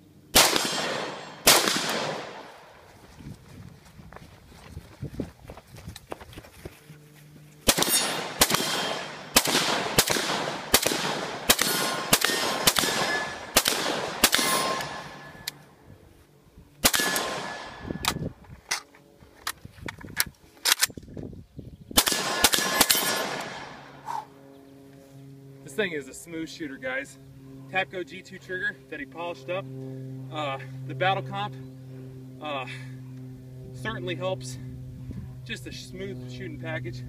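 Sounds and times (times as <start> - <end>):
rifle shots echoing: 0.3 - 2.8, 7.6 - 15.5, 16.8 - 18.2, 22.0 - 24.0.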